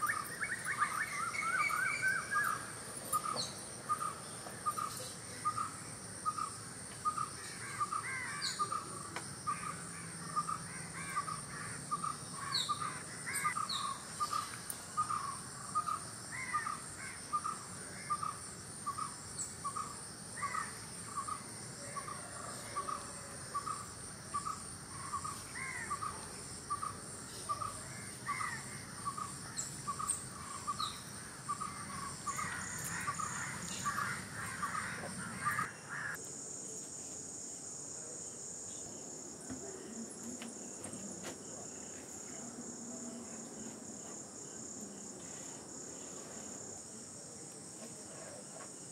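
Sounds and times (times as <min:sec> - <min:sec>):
birds chirping: 0:00.0 - 0:21.5, 0:22.1 - 0:36.2
high insect trill: 0:00.0 - 0:48.9.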